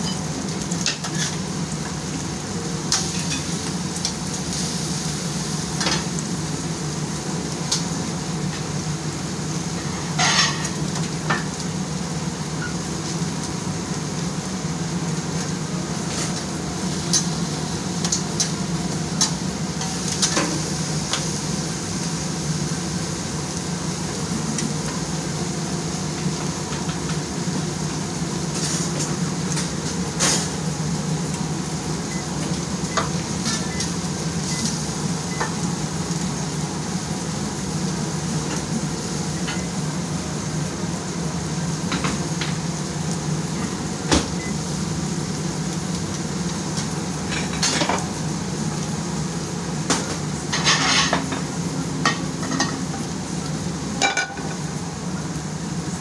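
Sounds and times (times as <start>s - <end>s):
food sizzling: 0.0s - 56.0s.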